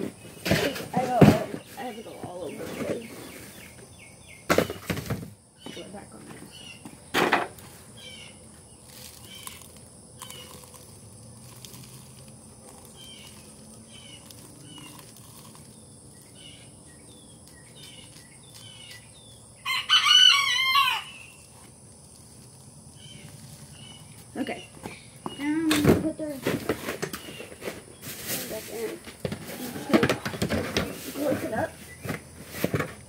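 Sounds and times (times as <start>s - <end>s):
small chirps: 8.0s - 19.5s
rooster crowing: 19.6s - 21.4s.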